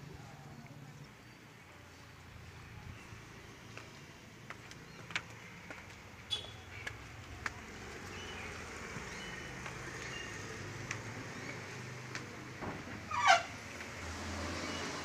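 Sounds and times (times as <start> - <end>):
footsteps down a staircase: 3.7 - 13.0.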